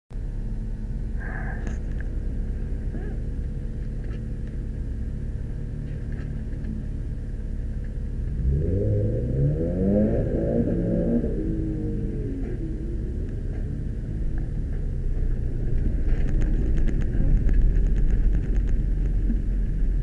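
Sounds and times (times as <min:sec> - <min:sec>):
car engine idling and revving: 0:00.2 - 0:20.0.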